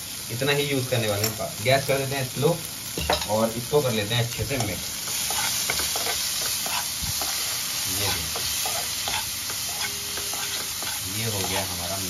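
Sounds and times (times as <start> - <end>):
vegetables sizzling: 0.0 - 12.0
spoon scraping frying pan: 4.4 - 11.9.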